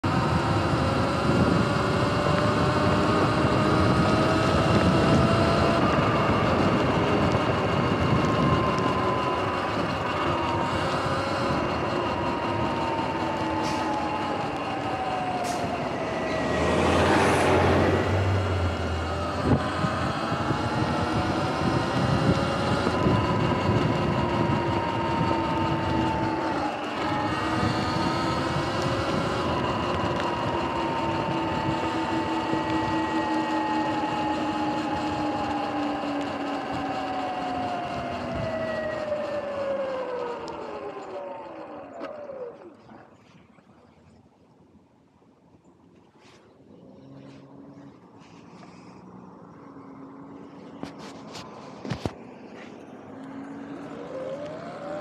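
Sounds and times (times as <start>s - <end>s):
tyre and wind noise: 0.0s - 41.0s
electric motor whine: 0.0s - 43.1s, 46.8s - 55.0s
vehicle passing: 9.5s - 35.2s, 46.2s - 55.0s.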